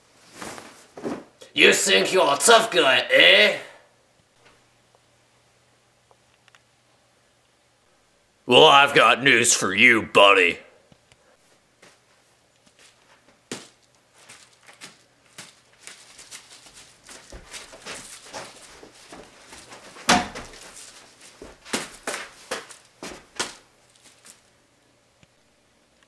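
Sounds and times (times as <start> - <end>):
rustling and scuffling: 0.0 - 1.4, 11.4 - 24.6
knocks and thumps: 20.0 - 20.6.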